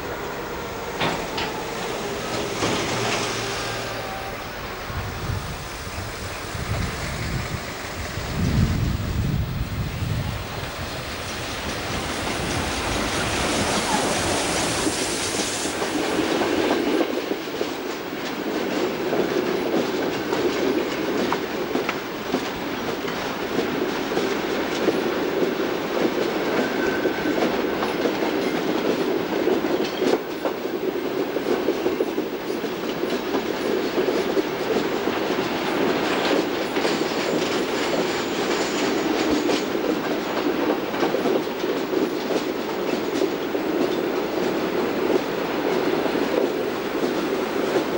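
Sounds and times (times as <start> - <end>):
wheels clacking over rail joints: 0.0 - 4.4, 10.6 - 47.9
broad hiss: 0.0 - 8.6, 10.4 - 17.0
freight train rumbling past: 0.0 - 47.9.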